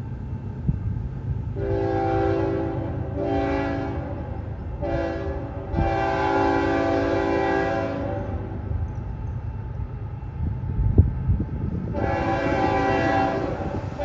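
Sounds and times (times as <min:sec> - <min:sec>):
locomotive air horn blasts: 0:01.6 - 0:08.6, 0:11.9 - 0:14.0.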